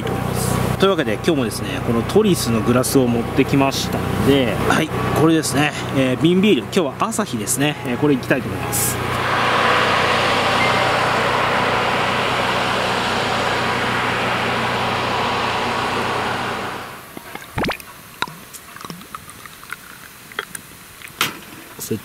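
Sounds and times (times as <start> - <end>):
snowplow hissing: 0.0 - 17.0
low engine hum: 0.0 - 17.2.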